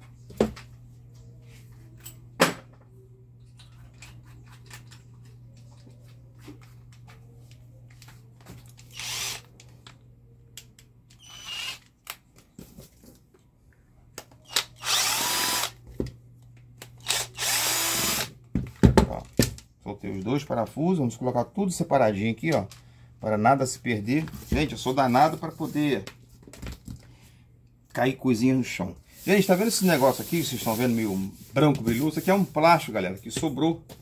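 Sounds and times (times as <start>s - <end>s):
cordless drill motor spinning: 8.9s - 9.6s, 11.1s - 11.9s, 14.4s - 15.8s, 17.0s - 18.3s.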